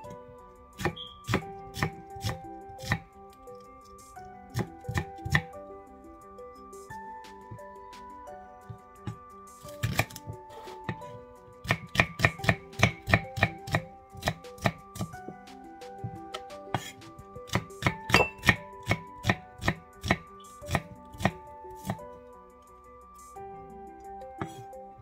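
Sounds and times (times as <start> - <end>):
soft background music: 0.0 - 25.0
knife chopping on wooden board: 0.8 - 3.1, 4.5 - 5.5, 9.1 - 15.2, 16.0 - 22.0, 24.4 - 24.6.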